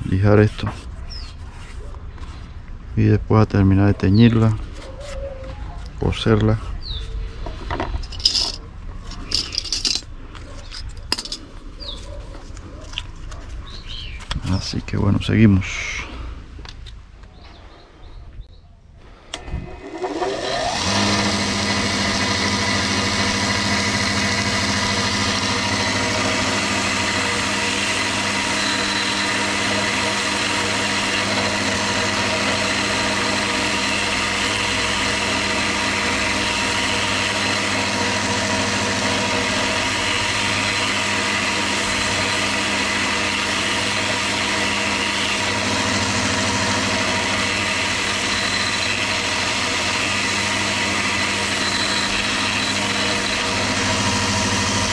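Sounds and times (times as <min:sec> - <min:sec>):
electric sander motor whine: 0:19.3 - 0:54.9.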